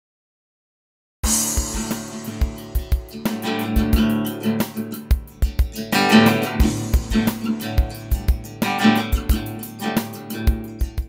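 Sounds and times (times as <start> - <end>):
guitar-led music with beat: 1.2 - 11.0.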